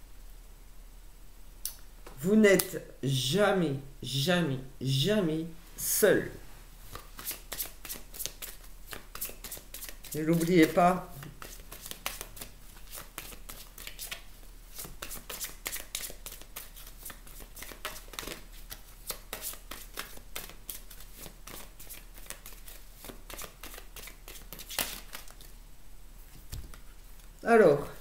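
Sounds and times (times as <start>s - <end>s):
cards being shuffled: 6.9s - 25.5s, 26.3s - 28.0s.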